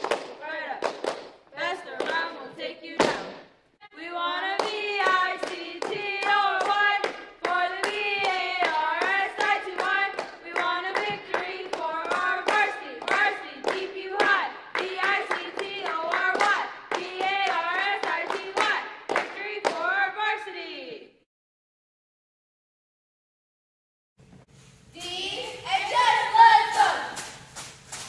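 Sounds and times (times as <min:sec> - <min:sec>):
hand claps: 0:00.0 - 0:01.4, 0:04.6 - 0:19.8
girls chanting a cheer: 0:01.5 - 0:21.1, 0:25.0 - 0:27.4.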